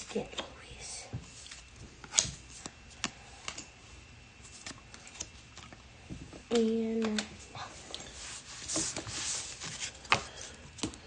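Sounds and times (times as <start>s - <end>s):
trading cards flipped by hand: 4.5s - 5.3s.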